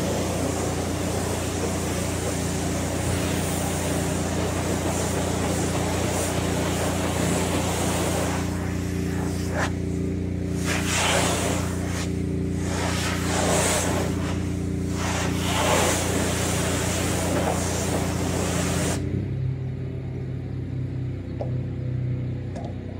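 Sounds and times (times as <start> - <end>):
water jet hissing on glass: 0.0 - 9.8, 10.6 - 19.0
pressure washer humming: 0.0 - 19.4.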